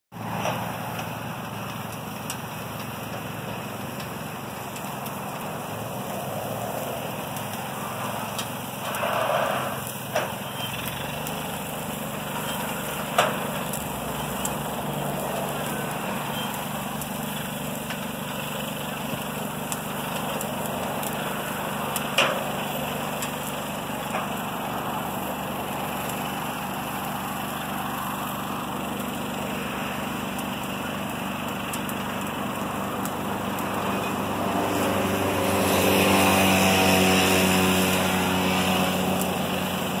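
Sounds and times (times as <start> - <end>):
small engine running: 0.2 - 40.0.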